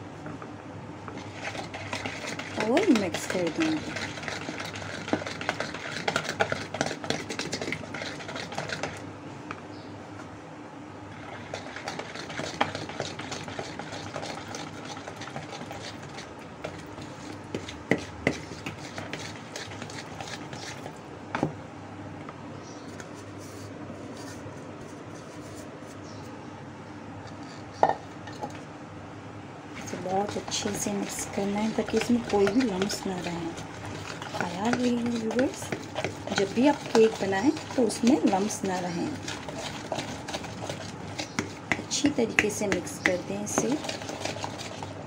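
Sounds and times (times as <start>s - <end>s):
whisk knocking against bowl: 1.1s - 9.0s, 11.4s - 21.5s, 29.9s - 44.9s
whisk stirring batter: 1.1s - 9.1s, 11.1s - 21.1s, 29.7s - 45.0s.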